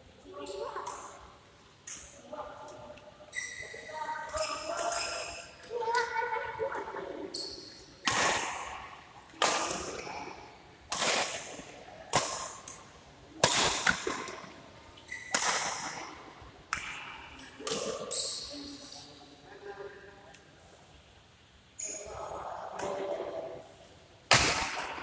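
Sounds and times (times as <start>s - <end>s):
badminton rackets striking shuttlecock: 10.9s - 12.8s, 13.4s - 14.5s, 15.2s - 16.0s.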